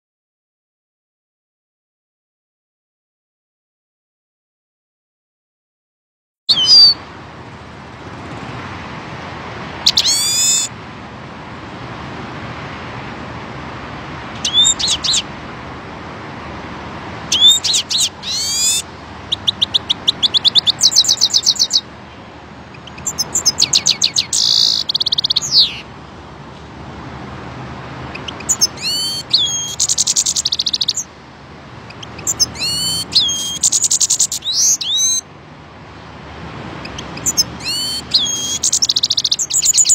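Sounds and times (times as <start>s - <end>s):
bird twittering and trilling: 6.5s - 7.0s, 9.8s - 10.8s, 14.3s - 15.3s, 17.3s - 25.9s, 28.0s - 31.1s, 31.8s - 35.3s, 36.8s - 39.9s.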